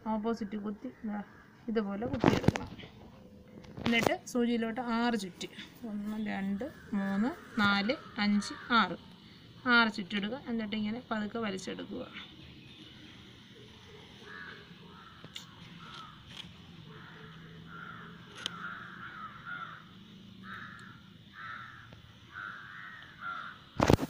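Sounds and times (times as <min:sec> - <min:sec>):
crows cawing: 0:06.5 - 0:09.5, 0:14.0 - 0:24.0.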